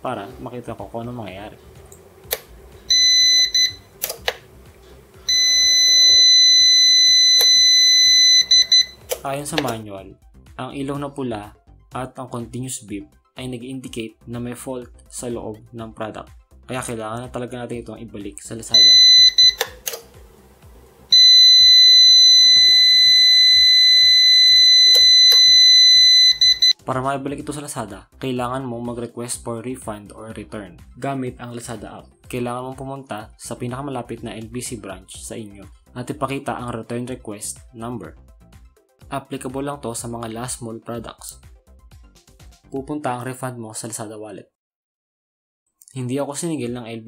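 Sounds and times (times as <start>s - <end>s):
sharp clicks: 1.9s - 2.5s, 4.0s - 4.4s, 19.4s - 20.2s
alarm buzzer beeping: 2.9s - 4.0s, 5.3s - 9.1s, 18.8s - 19.7s, 21.1s - 26.8s.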